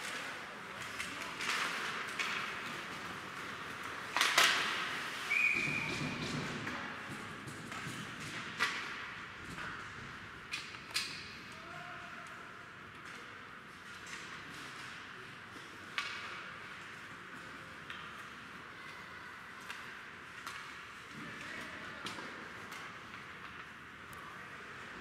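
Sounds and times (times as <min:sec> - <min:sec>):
hockey sticks and puck clacking: 0:00.0 - 0:18.6, 0:19.5 - 0:25.0.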